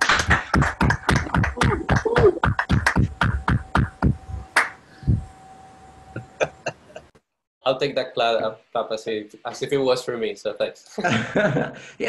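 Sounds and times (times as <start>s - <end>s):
people clapping: 0.0s - 4.8s.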